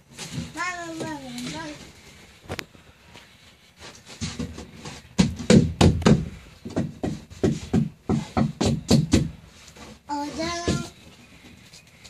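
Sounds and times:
knocks and taps on wood: 4.2s - 9.4s.

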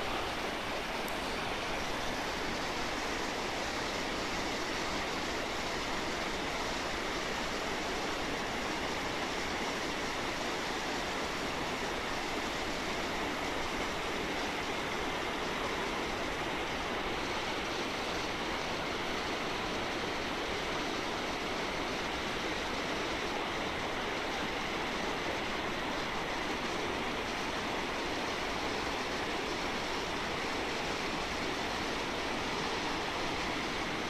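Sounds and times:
water rushing over boulders: 0.0s - 34.0s.

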